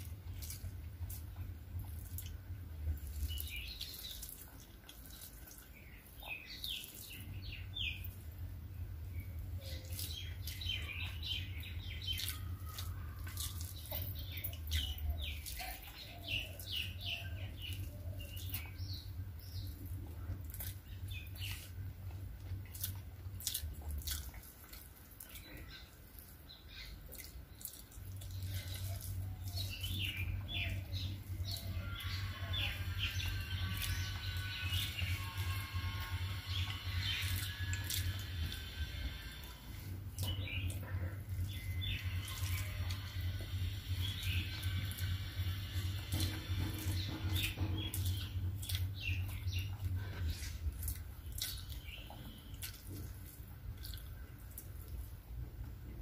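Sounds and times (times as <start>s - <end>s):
person chewing food: 0.0s - 8.4s, 9.1s - 55.8s
small birds chirping: 0.0s - 55.2s
low hum: 28.0s - 56.0s.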